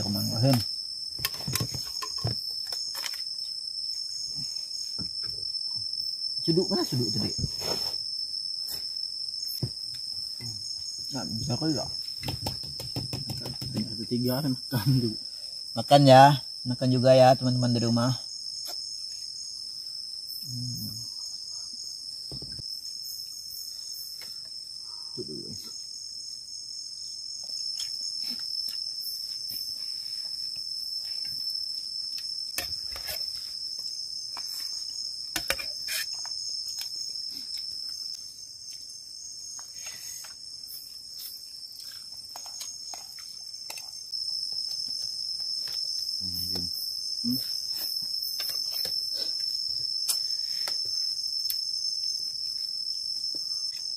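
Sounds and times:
crickets chirping: 0:00.0 - 0:53.9.

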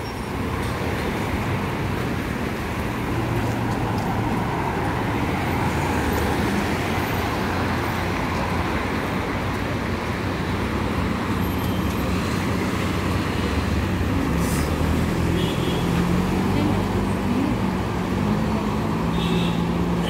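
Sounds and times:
passing road traffic: 0:00.0 - 0:20.0.

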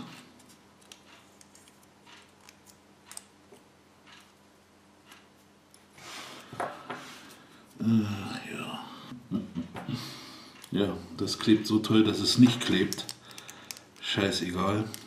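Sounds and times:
plastic toy pieces clicking: 0:12.7 - 0:14.1.

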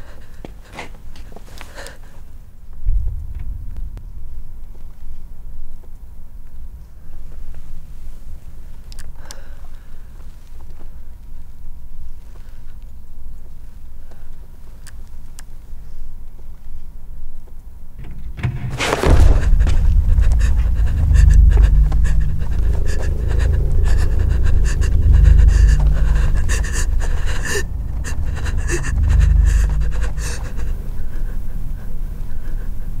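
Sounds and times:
woman panting: 0:00.0 - 0:02.2, 0:19.0 - 0:33.0
deep low rumble: 0:02.4 - 0:12.2, 0:18.0 - 0:33.0
loud thud: 0:02.8 - 0:05.7, 0:18.0 - 0:30.6.

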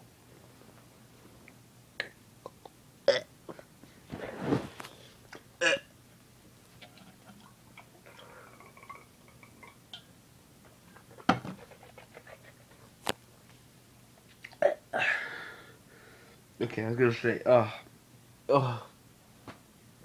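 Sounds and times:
man exhaling breathily: 0:15.0 - 0:16.2.

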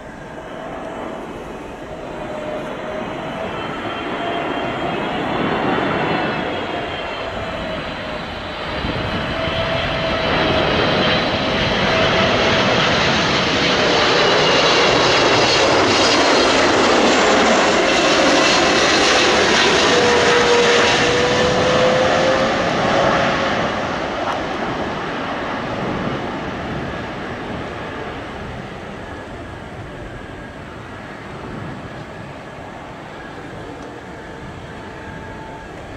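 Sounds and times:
jet engines roaring and whining: 0:00.0 - 0:35.9.

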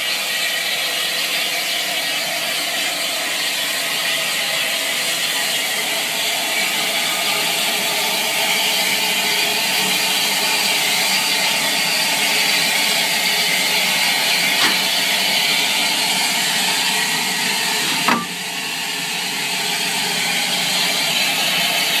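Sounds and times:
steam locomotive hissing: 0:00.0 - 0:22.0
metallic knock: 0:17.9 - 0:18.4.

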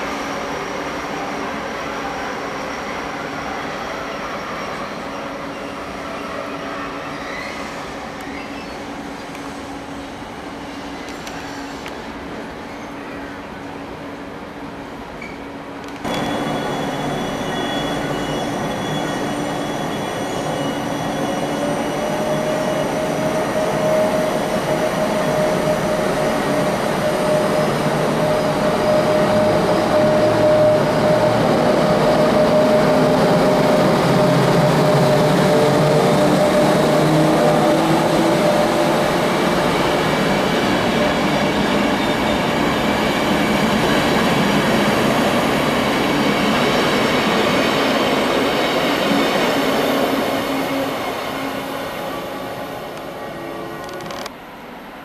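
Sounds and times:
train wheels rumbling on rail: 0:15.1 - 0:54.5.

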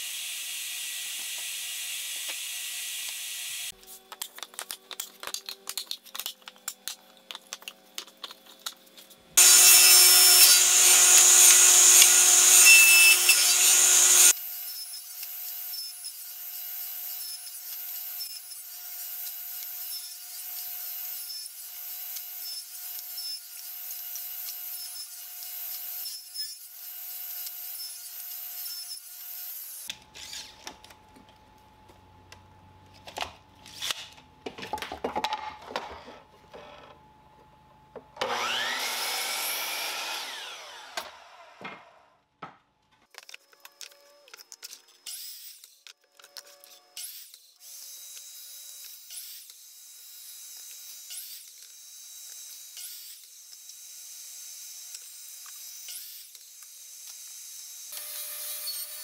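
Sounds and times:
miter saw motor whining: 0:38.2 - 0:41.6.

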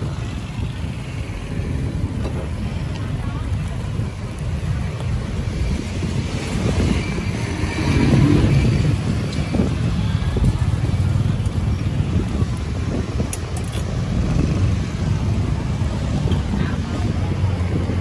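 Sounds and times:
passing cars and motorbikes: 0:00.0 - 0:18.0.

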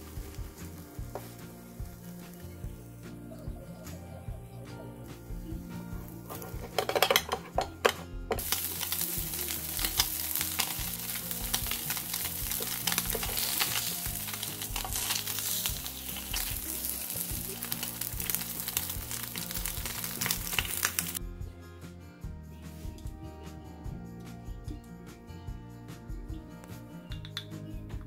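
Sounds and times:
meat sizzling in a frying pan: 0:00.0 - 0:02.4, 0:08.4 - 0:21.2
metal spatula scraping a pan: 0:06.3 - 0:19.3.

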